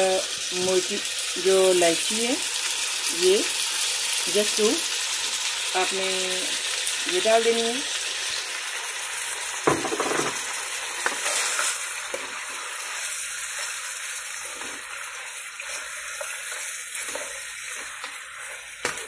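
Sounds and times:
meat sizzling in oil: 0.0s - 19.0s
metal spoon scraping wok: 11.0s - 12.3s, 15.6s - 19.0s.

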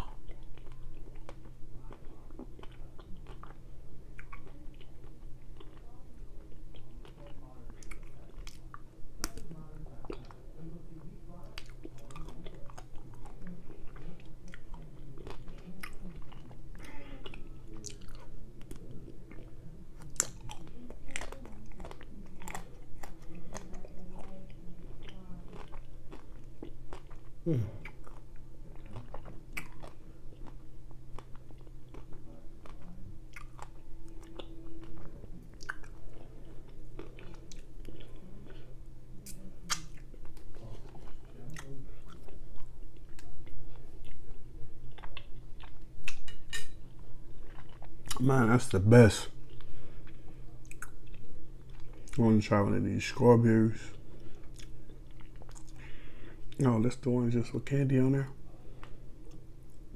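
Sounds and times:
steady low hum: 0.0s - 59.9s
person biting and chewing: 25.0s - 38.2s, 39.2s - 43.4s, 44.0s - 46.6s.

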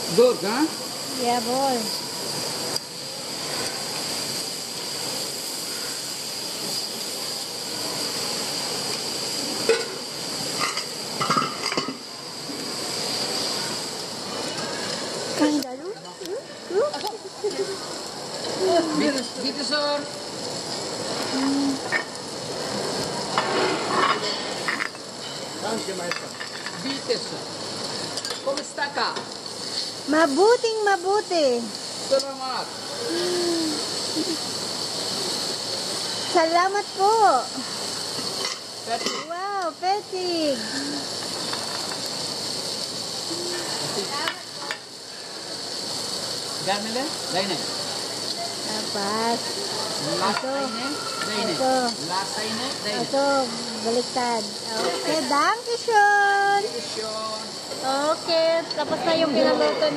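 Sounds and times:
food sizzling on griddle: 0.0s - 59.9s
metal spatulas scraping griddle: 23.4s - 25.5s.

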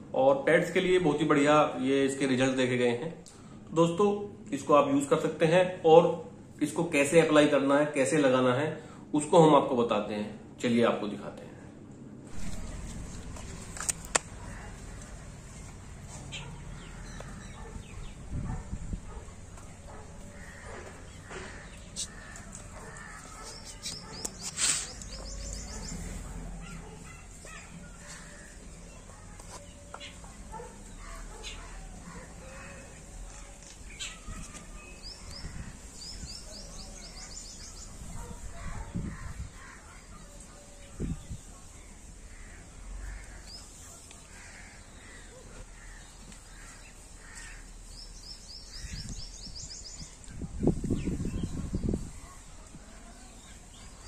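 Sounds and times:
birds calling: 12.3s - 54.0s.

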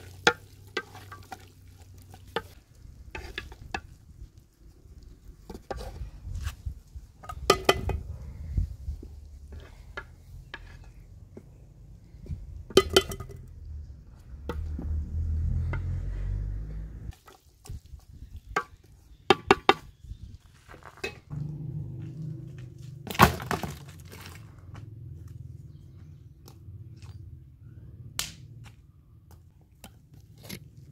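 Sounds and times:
low rumble: 11.5s - 17.1s, 21.3s - 23.1s.

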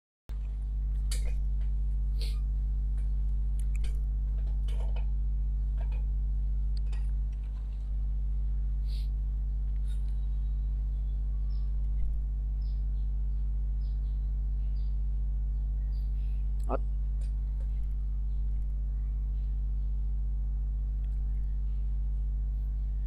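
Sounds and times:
low electrical hum: 0.3s - 23.0s
chirps: 9.8s - 16.8s, 21.0s - 21.8s.

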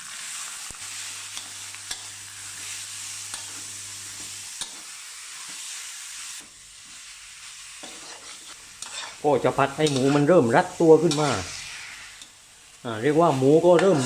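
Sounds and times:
meat sizzling in hot oil: 0.0s - 14.0s
spatula scraping pan: 7.8s - 12.3s.

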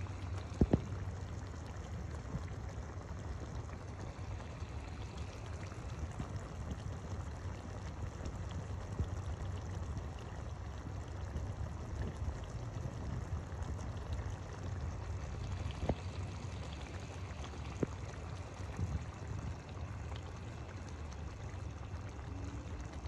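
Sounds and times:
sauce bubbling in a pan: 0.0s - 23.0s.

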